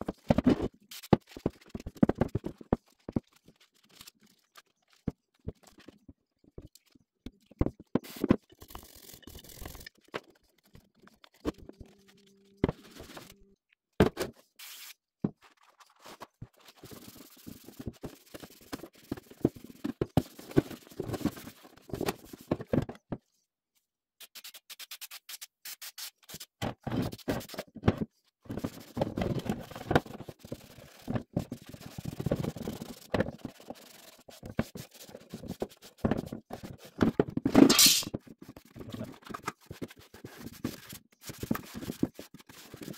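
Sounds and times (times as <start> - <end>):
cloth rag scrubbing metal parts: 37.6 - 38.1.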